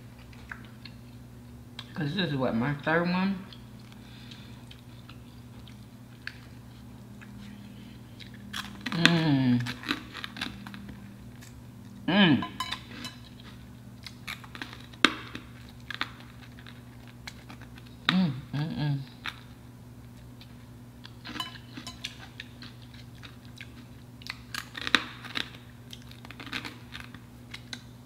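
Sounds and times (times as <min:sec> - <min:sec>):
crunching and chewing food: 0:00.0 - 0:28.0
person humming: 0:08.9 - 0:09.8, 0:12.0 - 0:12.6, 0:18.1 - 0:19.2.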